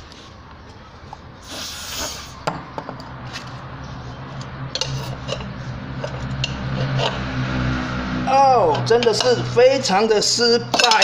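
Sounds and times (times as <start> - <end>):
spray hiss: 1.4 - 2.4
low steady hum: 2.3 - 11.0.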